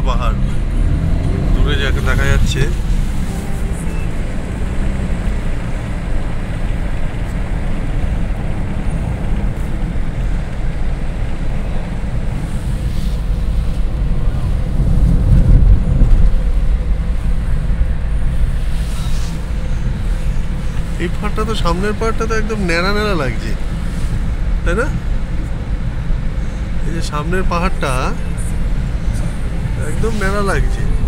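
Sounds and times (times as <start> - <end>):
car road and engine rumble: 0.0 - 31.0
wind buffeting microphone: 7.4 - 18.6.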